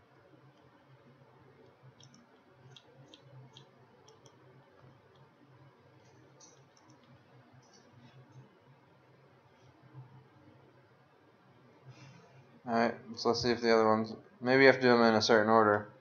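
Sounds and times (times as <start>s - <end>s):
low steady hum: 0.0s - 16.0s
computer mouse clicks: 1.6s - 5.3s, 6.1s - 8.5s.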